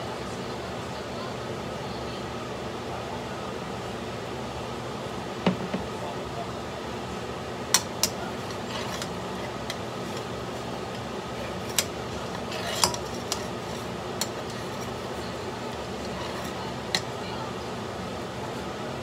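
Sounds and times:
metal spoon scraping wok: 0:07.8 - 0:17.2.

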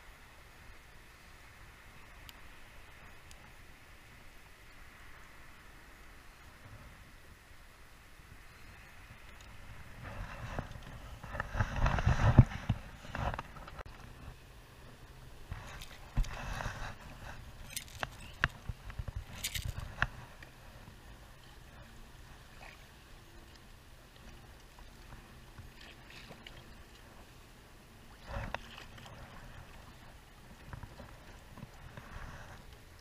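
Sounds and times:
water washing against hull: 0:08.1 - 0:33.0
fishing rod and reel clicking: 0:17.4 - 0:20.6.

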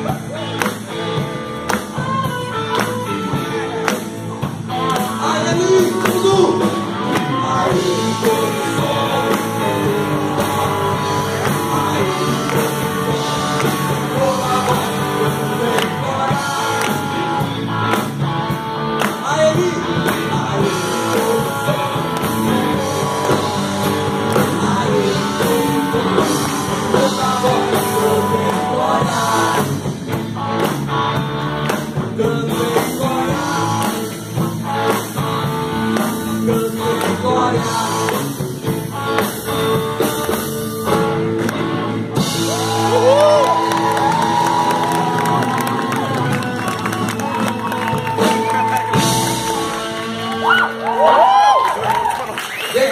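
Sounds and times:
bass guitar: 0:00.0 - 0:52.9
drum kit: 0:00.0 - 0:52.9
electric guitars: 0:00.0 - 0:52.9
man singing into microphone: 0:04.9 - 0:17.2, 0:19.2 - 0:29.9, 0:32.0 - 0:34.5, 0:36.0 - 0:38.7.

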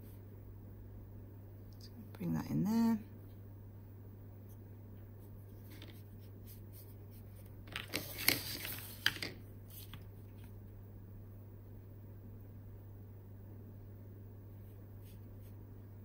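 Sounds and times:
low steady hum: 0:00.0 - 0:16.0
paper rustling and scraping: 0:05.5 - 0:10.6.

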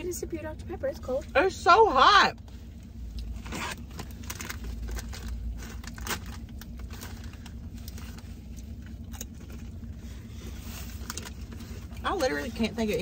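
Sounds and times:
low hum inside a car: 0:00.0 - 0:13.0
paper wrapper crackling: 0:03.7 - 0:08.1.

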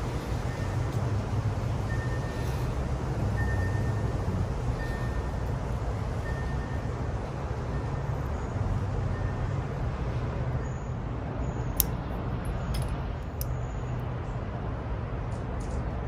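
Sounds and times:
distant traffic rumble: 0:00.0 - 0:16.0
wire cutters snipping: 0:11.7 - 0:12.0.

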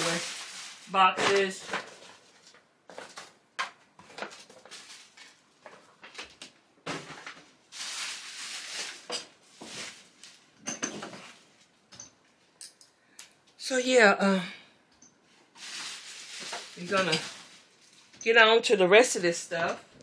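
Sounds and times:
paper and plastic bags rustling: 0:00.0 - 0:03.4, 0:04.0 - 0:10.6, 0:15.3 - 0:18.2.

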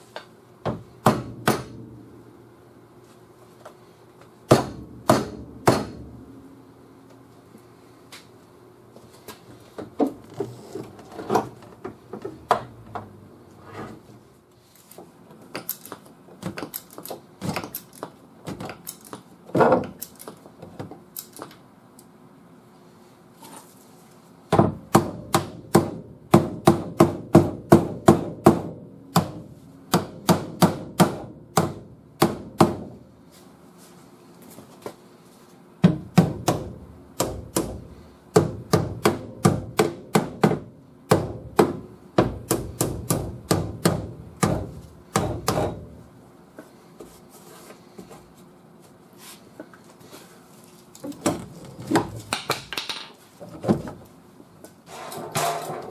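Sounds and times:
hammer striking steel panel: 0:01.0 - 0:02.0, 0:04.5 - 0:06.2.

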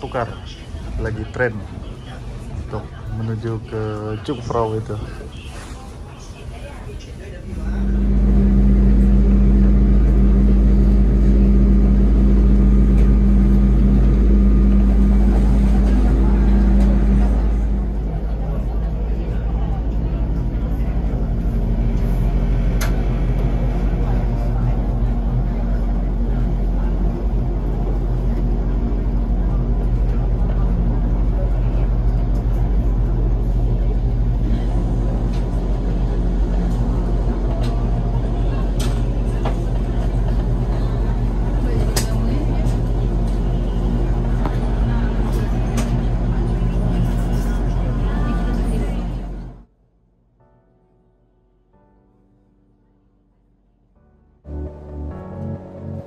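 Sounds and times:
train rumble inside carriage: 0:00.0 - 0:49.7
motor hum: 0:07.8 - 0:19.8.

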